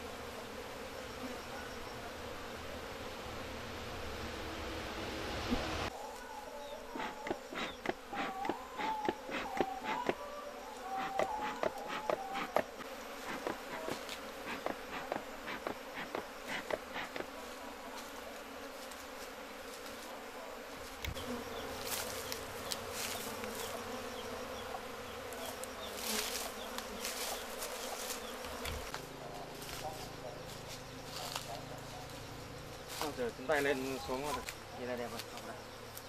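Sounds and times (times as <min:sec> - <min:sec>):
bees buzzing: 0:00.0 - 0:36.0
scattered ticks: 0:07.0 - 0:10.2.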